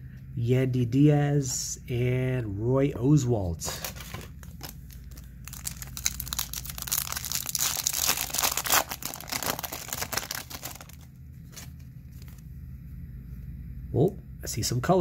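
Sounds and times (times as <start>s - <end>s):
foil wrapper tearing and crinkling: 3.8s - 12.4s.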